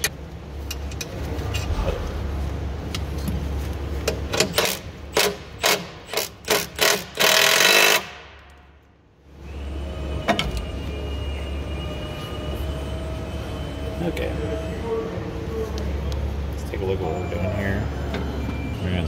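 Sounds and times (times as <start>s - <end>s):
impact driver hammering a bolt: 4.4s - 8.3s.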